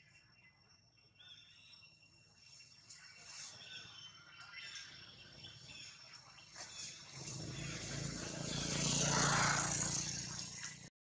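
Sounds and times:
vehicle passing: 6.6s - 10.9s.

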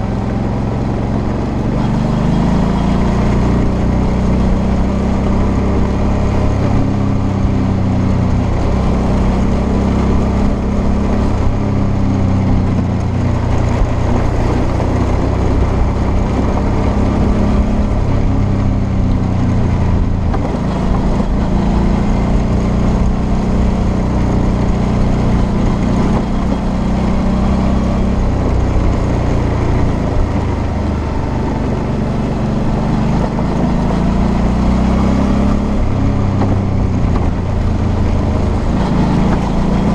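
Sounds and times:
motorcycle engine running: 0.0s - 39.9s
tyres on gravel: 23.8s - 39.9s.

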